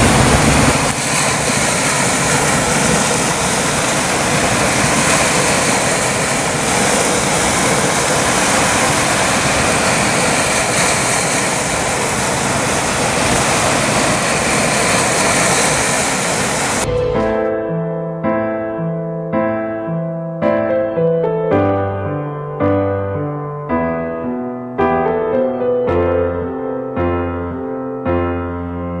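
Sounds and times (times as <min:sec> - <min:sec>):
loud rushing noise: 0:00.0 - 0:18.2
gentle piano tune: 0:16.8 - 0:29.0.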